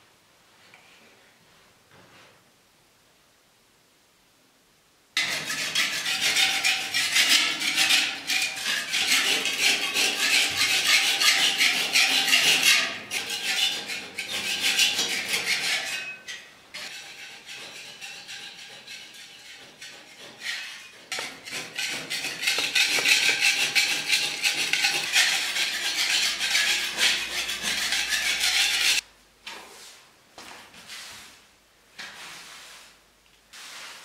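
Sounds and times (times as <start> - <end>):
paint scraper rasping on walls: 5.2 - 29.0.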